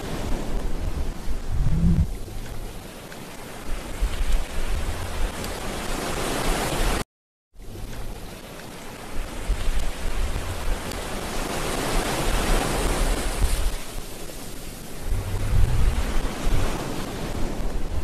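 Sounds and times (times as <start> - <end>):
wind buffeting microphone: 0.0 - 2.9, 3.5 - 7.0, 9.0 - 18.0
steady rushing hiss: 7.6 - 18.0.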